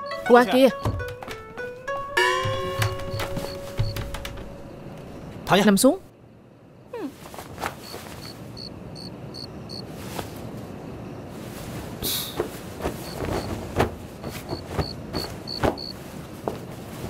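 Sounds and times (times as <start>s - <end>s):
background hiss: 0.0s - 17.0s
soft knocks: 0.7s - 5.4s
quilt cloth rustling: 1.0s - 5.4s, 7.1s - 8.5s, 9.9s - 10.7s, 11.3s - 17.0s
crickets chirping: 1.9s - 6.9s, 7.7s - 16.3s.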